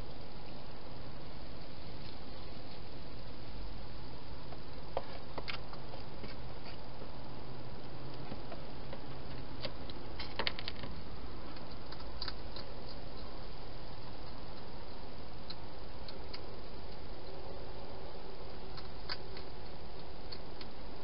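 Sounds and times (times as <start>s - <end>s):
steady hiss: 0.0s - 21.0s
hedgehog eating crunches: 7.7s - 21.0s.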